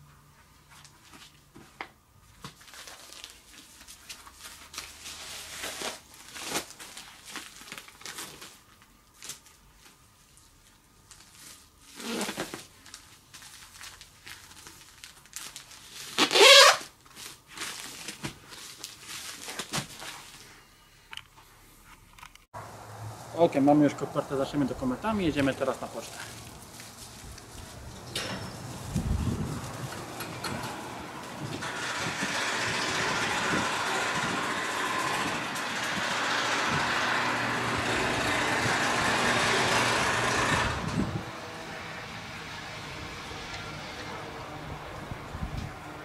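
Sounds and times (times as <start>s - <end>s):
paper and mailer rustling: 0.8s - 20.6s, 23.6s - 41.2s
rasping scrape: 26.1s - 41.2s.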